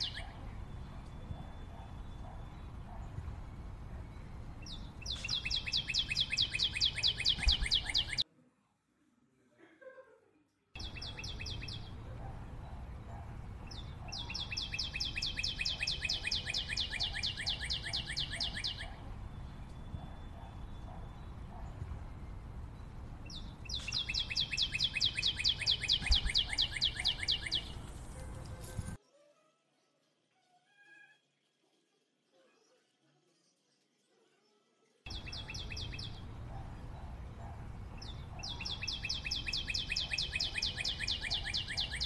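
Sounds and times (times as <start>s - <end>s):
bird chirping rapidly: 0.0s - 8.2s, 10.8s - 29.0s, 35.1s - 42.0s
low background noise: 0.0s - 42.0s.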